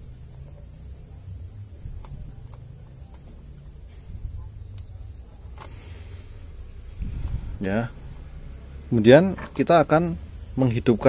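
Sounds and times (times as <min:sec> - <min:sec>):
high-pitched insect chorus: 0:00.0 - 0:11.0
plastic connectors clicking: 0:02.0 - 0:03.3.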